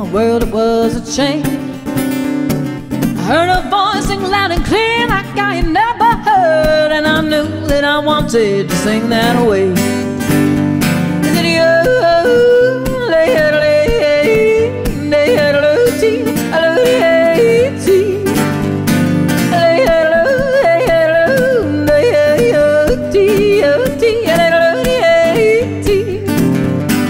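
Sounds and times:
strummed acoustic guitar: 0.0s - 27.0s
woman yodeling: 3.3s - 8.5s, 11.4s - 18.3s, 19.5s - 26.3s.

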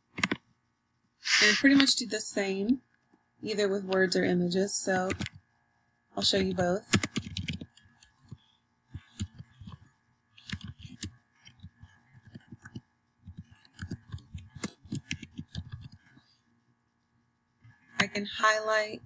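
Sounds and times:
computer keyboard typing: 0.2s - 0.4s, 5.0s - 5.4s, 6.5s - 8.4s, 9.0s - 16.2s.

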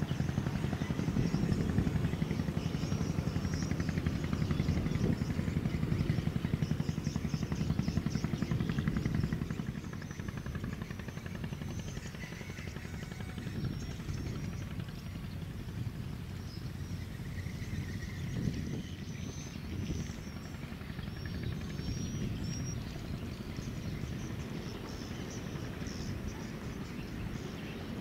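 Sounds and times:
ship engine throbbing rumble: 0.0s - 28.0s.

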